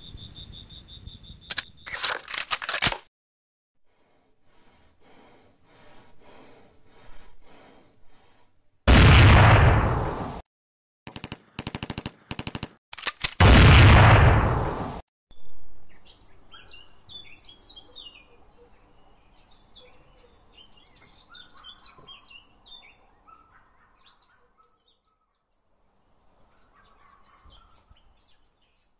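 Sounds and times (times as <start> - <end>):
loud blasts: 8.9 - 10.4, 13.4 - 15.0
small birds chirping: 15.3 - 28.9.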